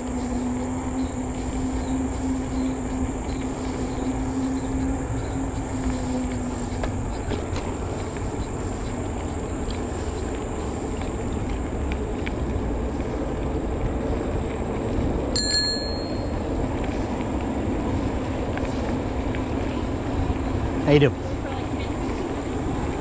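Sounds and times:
high insect drone: 0:00.0 - 0:15.3
wind and tyre noise: 0:00.0 - 0:23.0
bicycle bell ding: 0:15.4 - 0:16.4.

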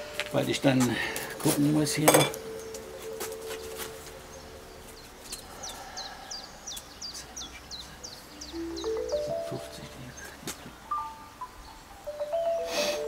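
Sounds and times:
chime-like notes: 0:01.4 - 0:04.1, 0:08.6 - 0:10.2, 0:10.9 - 0:13.0
small bird chirping: 0:04.3 - 0:12.7.

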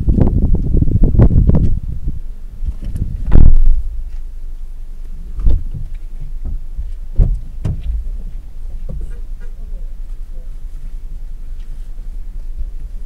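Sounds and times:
low wind rumble: 0:00.0 - 0:13.0
dull thumps: 0:02.6 - 0:03.9, 0:05.3 - 0:09.6.

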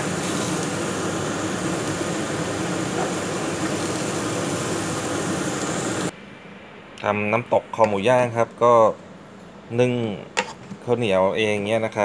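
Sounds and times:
meat sizzling on grill: 0:00.0 - 0:06.1.

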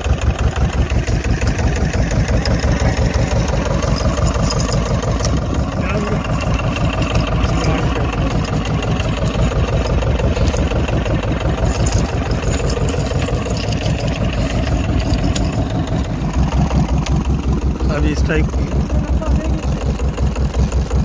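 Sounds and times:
boat engine running: 0:00.0 - 0:21.0.

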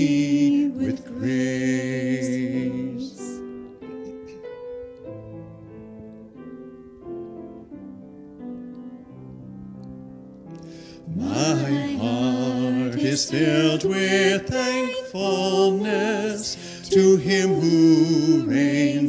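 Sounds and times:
man and woman singing a hymn: 0:00.0 - 0:03.6, 0:10.9 - 0:19.0
piano accompaniment: 0:00.0 - 0:19.0.

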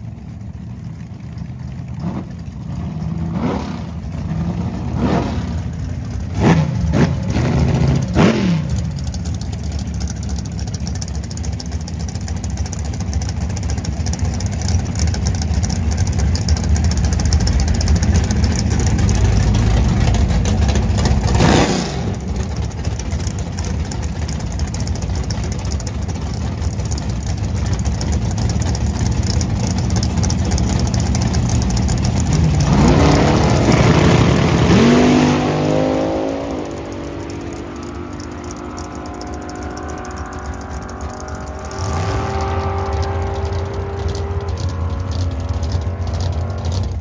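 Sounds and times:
racing car engines running rough: 0:00.0 - 0:47.0
engine revving up: 0:03.2 - 0:09.1, 0:21.0 - 0:22.7, 0:31.9 - 0:47.0.

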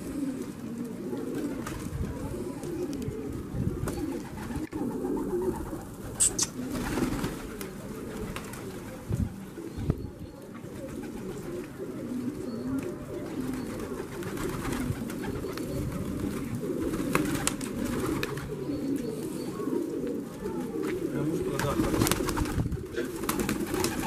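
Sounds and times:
pigeons cooing: 0:00.0 - 0:24.0
pigeons pecking grain: 0:00.0 - 0:24.0.

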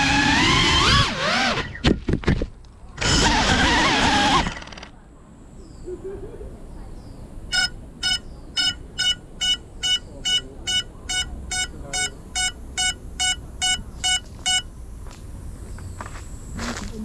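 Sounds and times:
drone buzzer beeping: 0:07.5 - 0:14.8.

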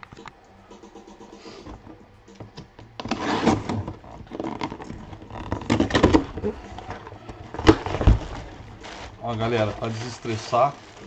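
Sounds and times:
knife cutting cardboard box: 0:03.0 - 0:06.4
cardboard tearing and rustling: 0:03.0 - 0:11.0.

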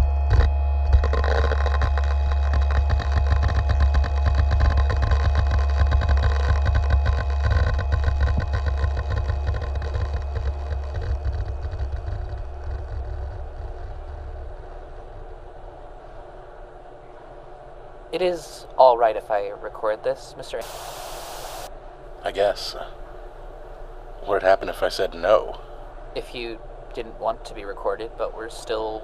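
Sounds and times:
dense crackle: 0:00.0 - 0:15.9, 0:20.6 - 0:25.9
deep electronic drone: 0:00.0 - 0:16.0
steady high electronic tones: 0:20.6 - 0:21.7.

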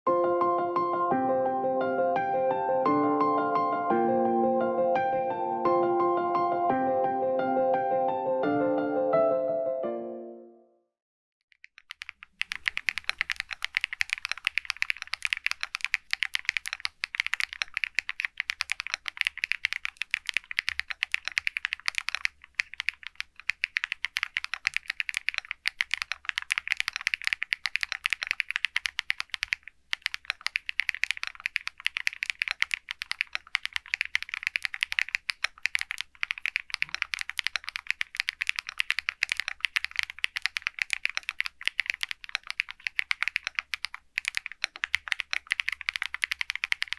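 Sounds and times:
mechanical keyboard typing: 0:11.6 - 0:46.9.

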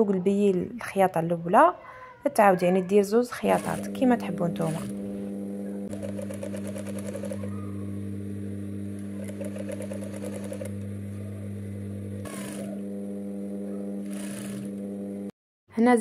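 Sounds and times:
sewing machine stitching: 0:03.3 - 0:05.0, 0:05.9 - 0:07.6, 0:09.1 - 0:10.8, 0:12.2 - 0:12.8, 0:14.0 - 0:15.0.

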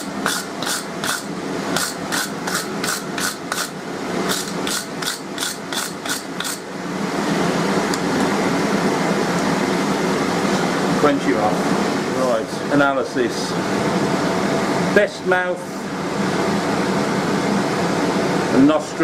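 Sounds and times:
wire brush scrubbing iron: 0:00.0 - 0:06.7
fan-like hum: 0:00.0 - 0:19.0.

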